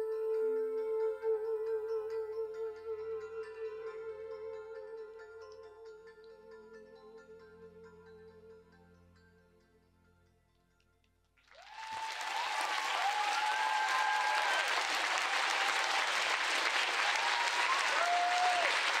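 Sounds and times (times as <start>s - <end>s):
audience applauding: 11.4s - 19.0s
cheering voices: 11.5s - 19.0s.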